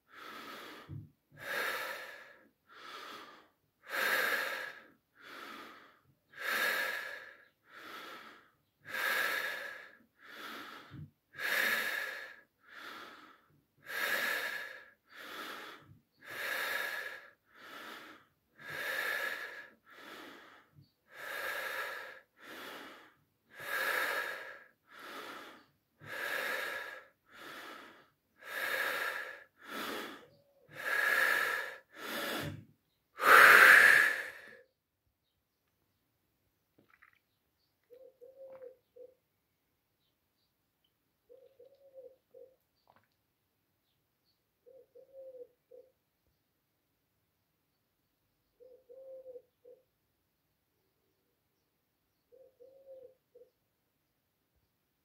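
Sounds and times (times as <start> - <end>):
man breathing deeply: 0.0 - 34.7.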